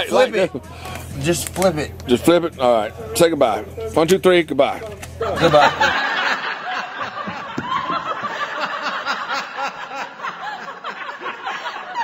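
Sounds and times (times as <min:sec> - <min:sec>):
people laughing and snickering: 0:05.0 - 0:12.0.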